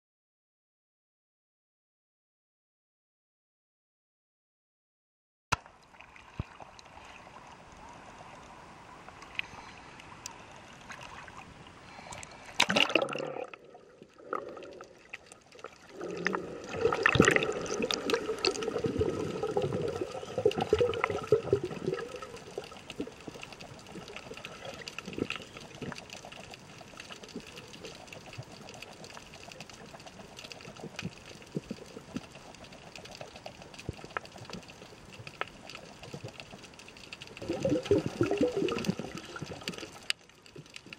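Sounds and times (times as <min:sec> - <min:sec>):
water splashing and sloshing: 0:05.6 - 0:40.9
faint clicks: 0:06.3 - 0:11.2, 0:12.1 - 0:12.7, 0:22.2 - 0:40.9.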